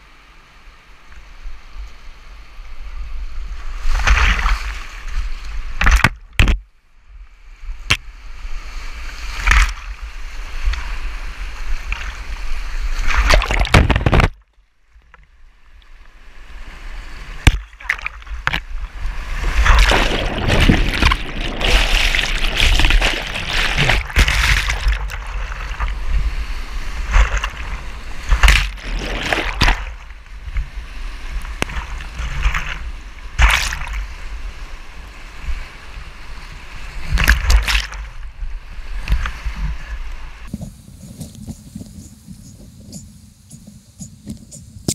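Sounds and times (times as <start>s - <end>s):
water splashing: 11.6s - 14.4s, 17.3s - 34.3s, 37.0s - 38.2s
whitewater rushing: 17.4s - 30.2s.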